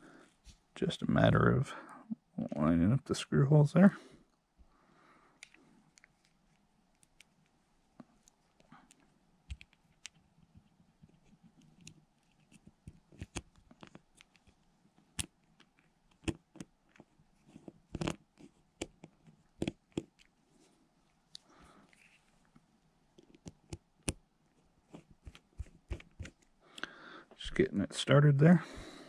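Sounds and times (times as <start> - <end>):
small plastic and metal clicks: 5.4 - 7.5, 8.2 - 17.1, 17.9 - 18.2.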